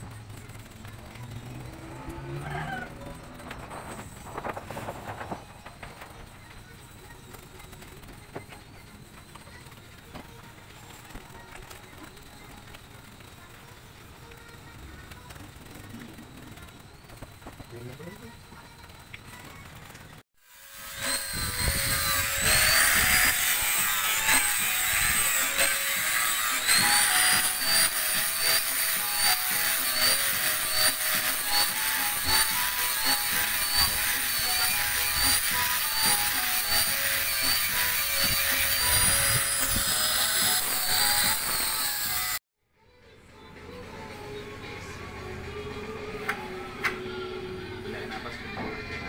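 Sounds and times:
angle grinder grinding wood: 0.0 - 42.4
background music with simple melody: 20.9 - 49.0.

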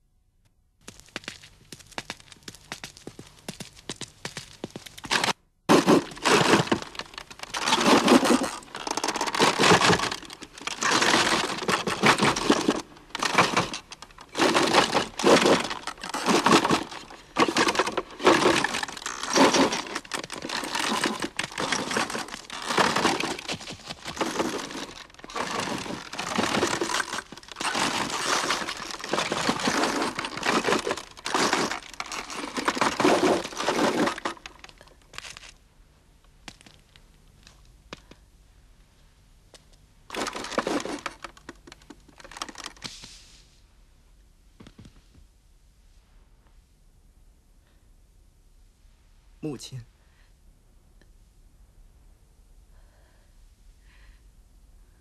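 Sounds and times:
wooden hand loom clattering: 5.1 - 34.7, 40.1 - 42.8.

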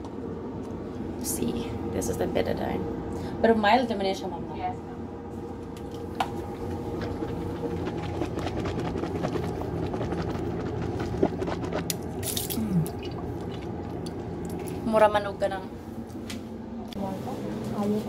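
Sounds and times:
person gargling: 7.1 - 13.6
person spitting into sink: 11.3 - 13.2.

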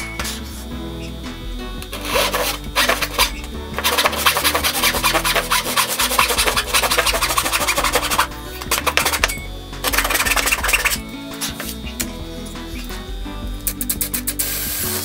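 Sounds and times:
background music: 0.0 - 15.0
handsaw cutting wood: 1.9 - 12.0.

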